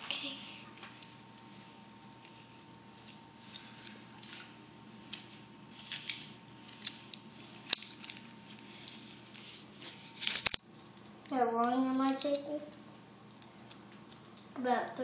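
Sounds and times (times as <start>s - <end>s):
plastic packaging crinkling: 0.8s - 12.6s
plastic toy pieces clicking: 12.0s - 12.6s.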